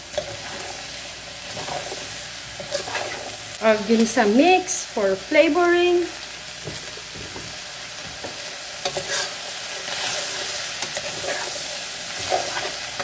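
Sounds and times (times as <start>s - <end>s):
vegetables sizzling in a pan: 0.0s - 13.0s
utensil scraping a pan: 0.1s - 3.4s, 8.8s - 13.0s.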